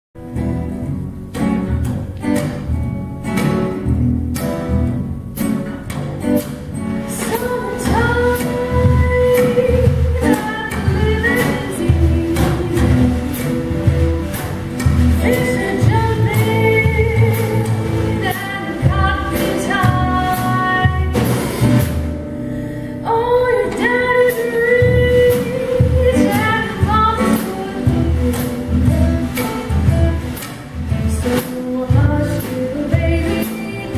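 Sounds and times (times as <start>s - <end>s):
acoustic guitar strumming: 0.2s - 33.9s
upright bass notes: 0.2s - 33.9s
woman singing: 7.1s - 14.0s, 15.1s - 21.4s, 23.0s - 33.9s.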